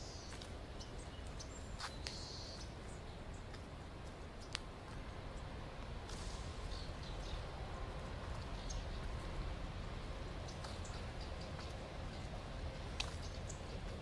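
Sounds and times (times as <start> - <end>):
faint bird chirps: 0.0 - 3.5
steady low rumble: 0.0 - 14.0.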